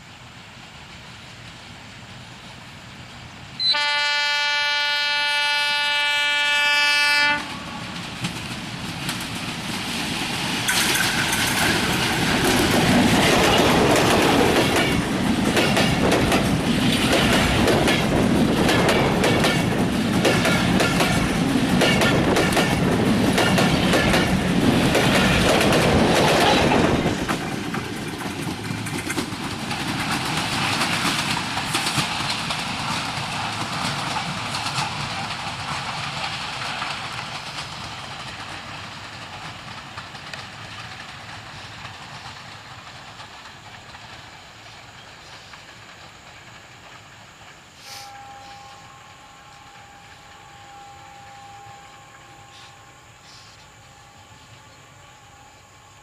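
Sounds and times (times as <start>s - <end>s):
diesel train horn blast: 3.6s - 8.0s, 47.8s - 56.0s
train wheels clacking over rail joints: 7.3s - 48.2s.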